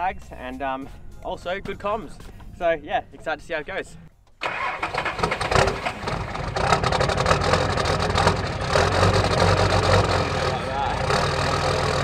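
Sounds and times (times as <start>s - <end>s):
diesel engine idling: 4.4s - 12.0s.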